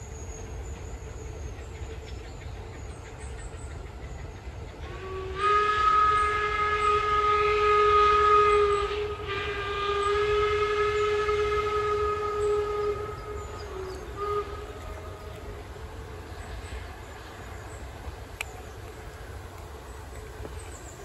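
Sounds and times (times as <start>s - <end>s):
train rumbling: 0.0s - 21.0s
train horn chord: 4.8s - 15.6s.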